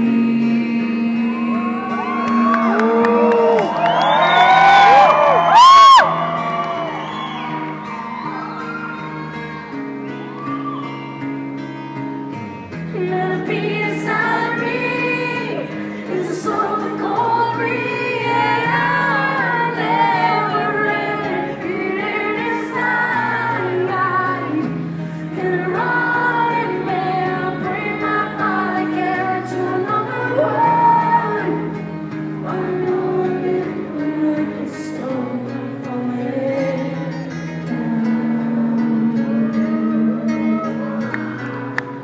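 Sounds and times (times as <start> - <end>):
woman singing: 0.0 - 3.6, 12.8 - 41.4
guitar chords: 0.0 - 42.0.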